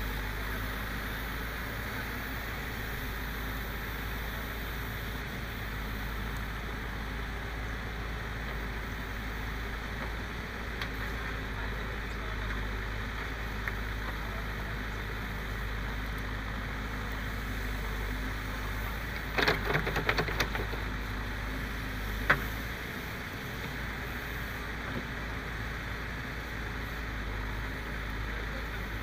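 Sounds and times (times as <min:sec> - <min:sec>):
diesel engine running: 0:00.0 - 0:29.0.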